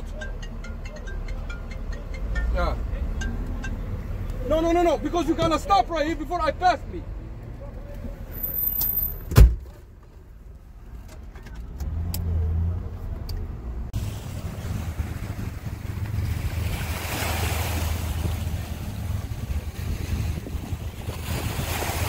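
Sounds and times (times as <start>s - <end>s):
sharp thump: 9.2s - 9.7s
choppy river water: 14.0s - 22.0s
wind on microphone: 14.2s - 22.0s.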